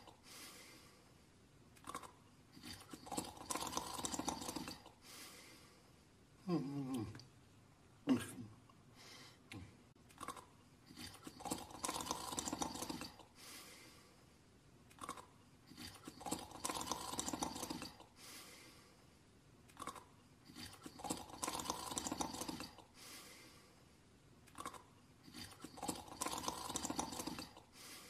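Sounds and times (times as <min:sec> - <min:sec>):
cartoon snoring: 0:01.9 - 0:04.9, 0:06.5 - 0:07.2, 0:10.9 - 0:13.2, 0:15.0 - 0:18.0, 0:19.8 - 0:22.9, 0:24.6 - 0:27.7.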